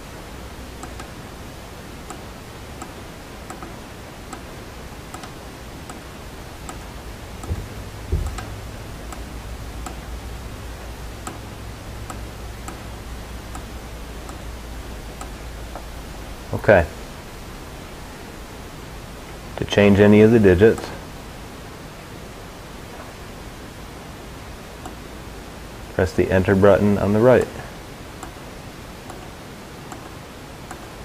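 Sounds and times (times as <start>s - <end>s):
low hum: 0.0s - 28.4s
low thumps: 6.7s - 10.2s.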